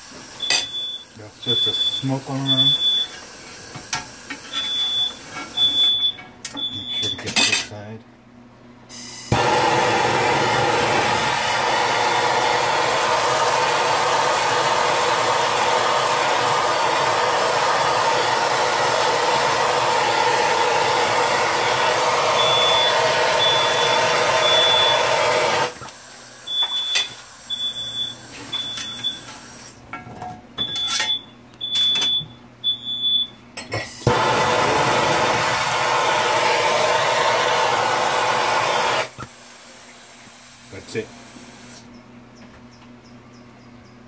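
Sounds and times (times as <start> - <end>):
smoke alarm beeping: 0.4 - 3.2, 4.5 - 7.3, 19.6 - 25.5, 26.5 - 29.3, 30.6 - 33.4
blowtorch flame hissing: 9.0 - 26.2, 34.0 - 41.8.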